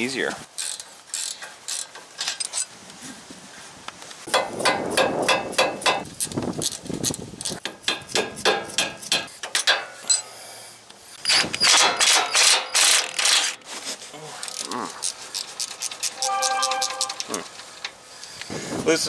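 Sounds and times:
hand ratchet clicking: 0:00.6 - 0:01.9.

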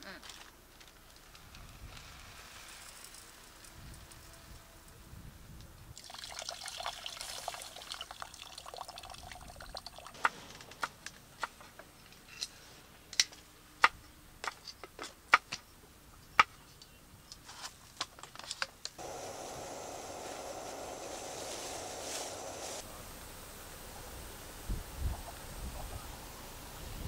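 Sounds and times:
water running into pot: 0:06.0 - 0:10.2.

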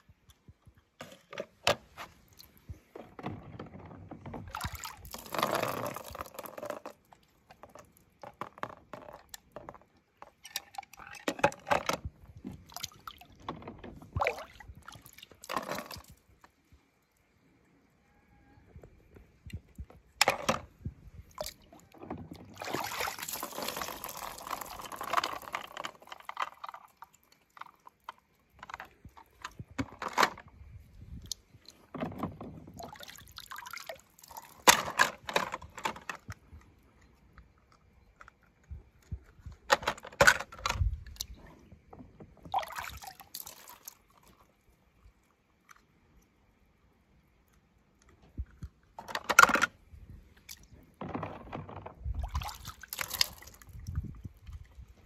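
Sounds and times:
water splashing in plastic tub: 0:02.2 - 0:16.4, 0:19.5 - 0:30.4, 0:31.2 - 0:36.3, 0:42.3 - 0:44.4, 0:50.4 - 0:55.0.

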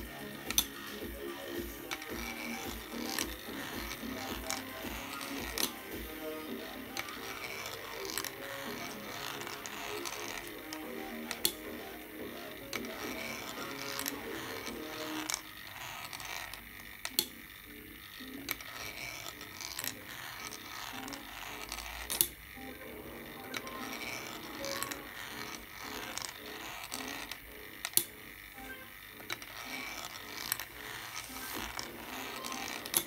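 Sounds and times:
balls clicking on track: 0:00.0 - 0:33.0
mechanical whir: 0:00.0 - 0:33.0
steel balls rolling and rattling: 0:00.0 - 0:33.0.

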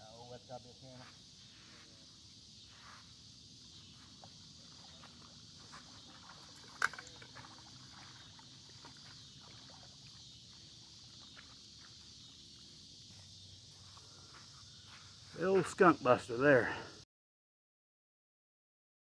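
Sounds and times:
insect chorus hiss: 0:00.0 - 0:17.0.

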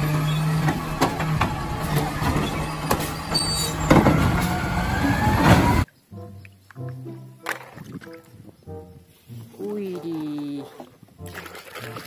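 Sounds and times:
diesel engine running: 0:00.0 - 0:05.8
rising hydraulic whine: 0:00.0 - 0:05.9
metal clanks of bin arm: 0:00.1 - 0:05.8.

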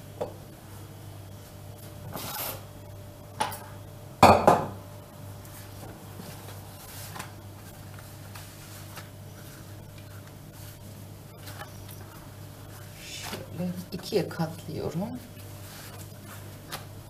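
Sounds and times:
pastry sheets rustling: 0:05.4 - 0:17.0.

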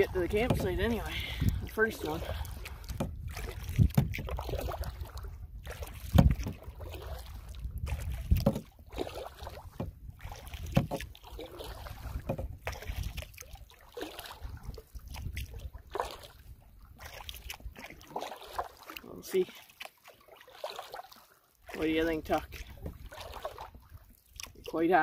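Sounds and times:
wind rumble on microphone: 0:00.0 - 0:13.4, 0:14.3 - 0:17.8, 0:22.2 - 0:24.6
paddle splashing: 0:00.0 - 0:25.0
water noise: 0:00.0 - 0:25.0.

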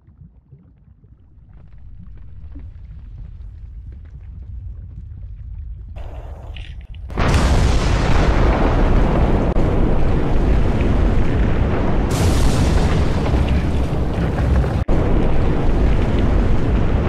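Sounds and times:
volcanic eruption blast and rumble: 0:01.3 - 0:17.0
hissing burst: 0:10.3 - 0:14.9.

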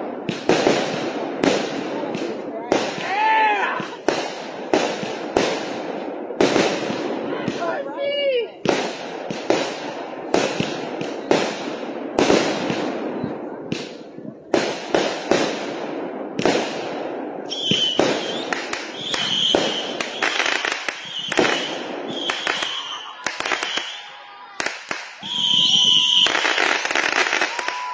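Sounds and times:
fireworks bangs: 0:00.0 - 0:27.9
fireworks crackling: 0:00.0 - 0:27.9
fireworks whistles: 0:17.4 - 0:27.9.

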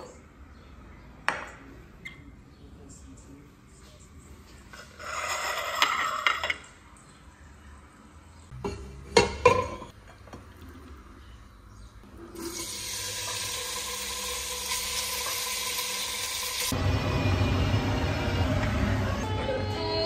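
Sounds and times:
meat sizzling in hot oil: 0:12.4 - 0:16.7.

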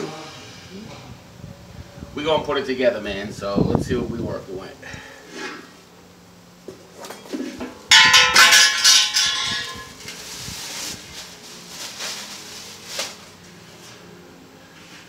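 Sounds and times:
steel parts clanging and ringing: 0:07.9 - 0:10.0
plastic wrapping rustling: 0:08.9 - 0:13.6.

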